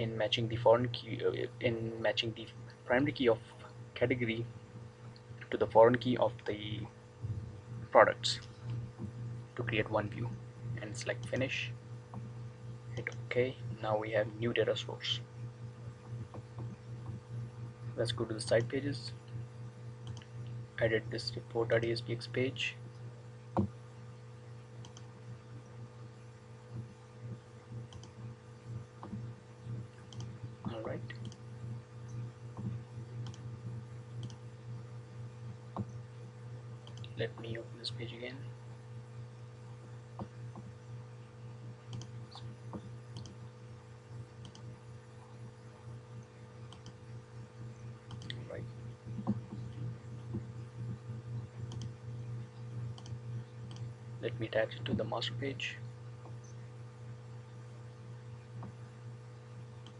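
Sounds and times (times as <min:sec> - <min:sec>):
low steady hum: 0:00.0 - 0:59.9
faint computer mouse clicks: 0:34.2 - 0:34.4, 0:44.4 - 0:44.7.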